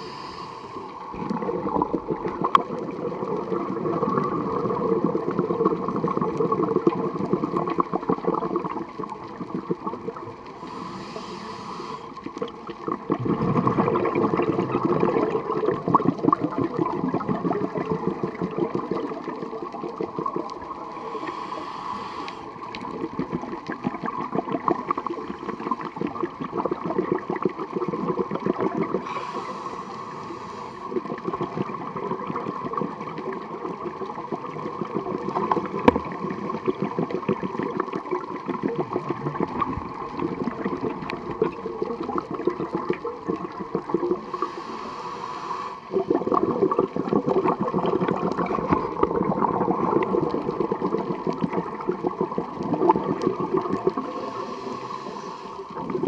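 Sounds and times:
regulator hisses: 0:00.0 - 0:01.0, 0:10.6 - 0:12.2, 0:21.0 - 0:22.5, 0:54.0 - 0:55.6
underwater bubbling of exhaled air: 0:00.0 - 0:56.0.

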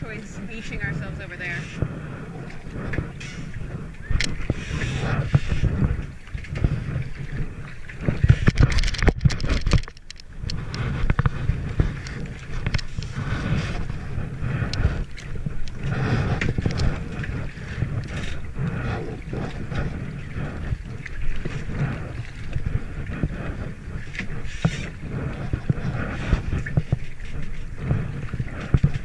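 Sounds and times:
paddle splashing in water: 0:00.0 - 0:29.0
wind rumble on microphone: 0:00.0 - 0:29.0
water dripping from paddle: 0:02.5 - 0:05.6, 0:14.6 - 0:25.8.

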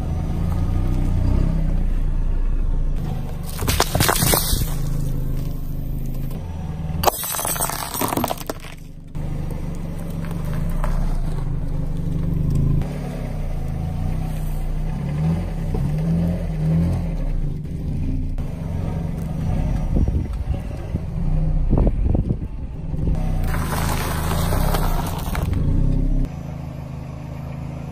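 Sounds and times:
car engine running: 0:00.0 - 0:27.9
tyre crushing brittle objects: 0:03.4 - 0:05.1, 0:07.0 - 0:08.9.

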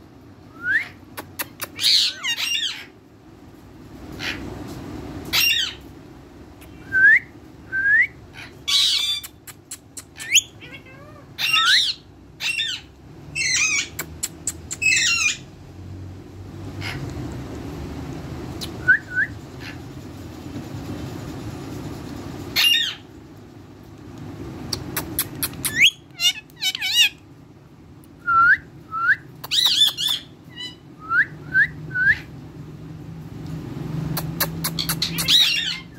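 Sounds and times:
parakeets calling: 0:00.8 - 0:03.0, 0:04.0 - 0:04.6, 0:05.2 - 0:06.0, 0:08.2 - 0:15.6, 0:16.5 - 0:17.4, 0:19.4 - 0:20.9, 0:21.6 - 0:23.5, 0:24.6 - 0:27.3, 0:29.5 - 0:30.9, 0:34.0 - 0:35.9.

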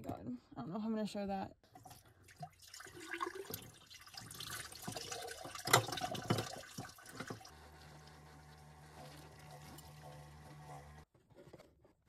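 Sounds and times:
water splashing and dripping: 0:01.8 - 0:07.5.

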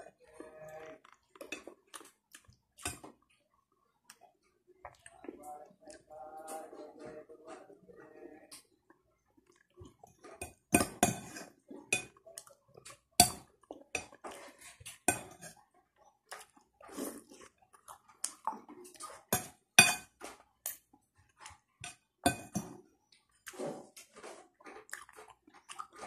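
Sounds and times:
cutlery clinking on a plate: 0:13.2 - 0:15.6, 0:19.3 - 0:20.8, 0:21.8 - 0:22.8.

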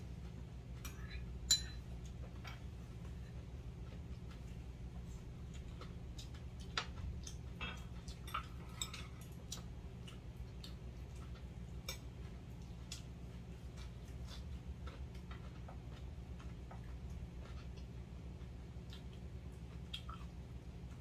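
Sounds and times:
steady low hum: 0:00.0 - 0:21.0
utensils clinking against bowls: 0:00.8 - 0:02.6, 0:07.6 - 0:09.3.

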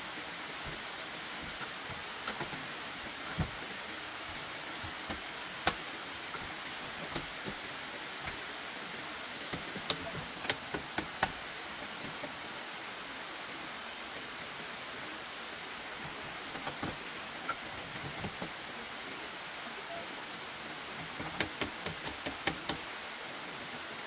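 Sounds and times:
steady hiss: 0:00.0 - 0:24.0
sharp knocks and clicks: 0:09.5 - 0:11.4, 0:21.2 - 0:22.8.

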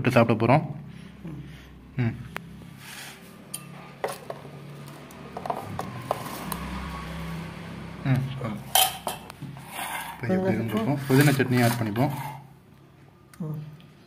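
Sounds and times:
spoon clinking against bowl: 0:08.7 - 0:09.3
spoon scraping in steel bowl: 0:08.7 - 0:12.6.

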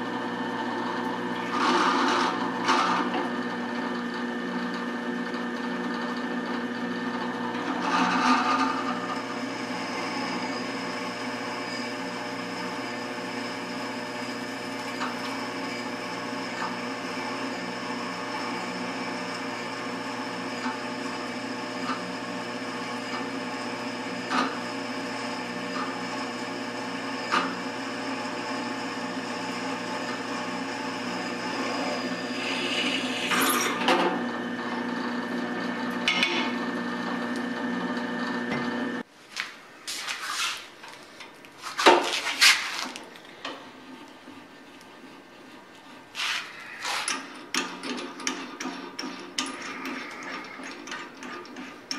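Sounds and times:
drill press boring into steel: 0:07.6 - 0:37.4.

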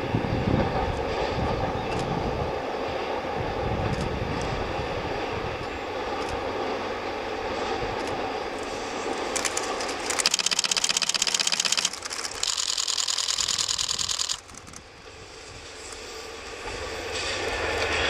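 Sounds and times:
camera shutters clicking rapidly: 0:09.2 - 0:14.9.

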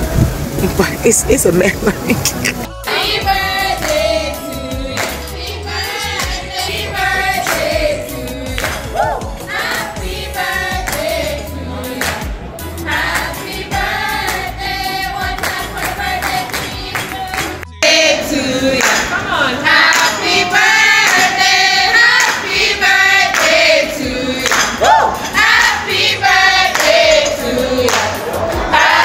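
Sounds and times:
group singing in chorus: 0:02.5 - 0:29.0
hands clapping: 0:03.8 - 0:04.1, 0:05.0 - 0:05.3, 0:06.2 - 0:06.4, 0:07.4 - 0:07.8, 0:08.5 - 0:09.1, 0:10.9 - 0:11.1, 0:12.0 - 0:12.3, 0:13.1 - 0:13.4, 0:14.2 - 0:14.6, 0:15.3 - 0:17.7, 0:18.8 - 0:19.2, 0:19.9 - 0:20.2, 0:21.0 - 0:21.4, 0:22.1 - 0:22.6, 0:23.3 - 0:23.6, 0:24.4 - 0:24.9, 0:26.7 - 0:28.3.

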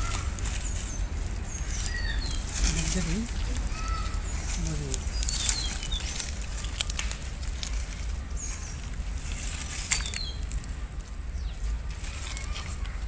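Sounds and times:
low rumble: 0:00.0 - 0:13.0
rope clicking against tree branch: 0:00.0 - 0:13.0
small birds chirping: 0:00.0 - 0:13.0.

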